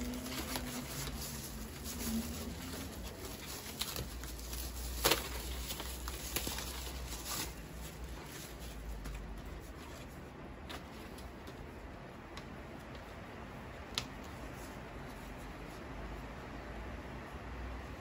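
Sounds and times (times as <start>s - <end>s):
plastic wrapping crinkling: 0.0s - 11.5s.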